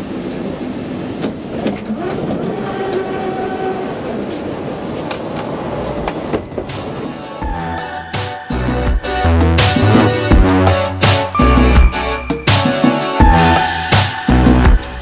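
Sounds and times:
train rumble: 0:00.0 - 0:15.0
music with a beat: 0:07.3 - 0:15.0.

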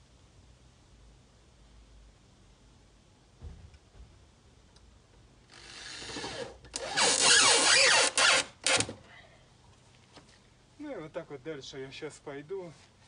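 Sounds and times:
cordless drill driving screws: 0:05.5 - 0:09.0.

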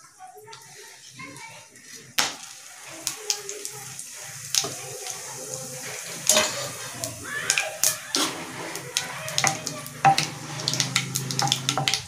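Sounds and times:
spices sizzling in hot oil: 0:00.0 - 0:12.0.

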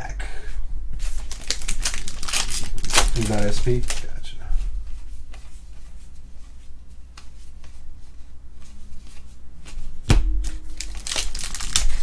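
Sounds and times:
sharp knock: 0:10.1 - 0:10.7.

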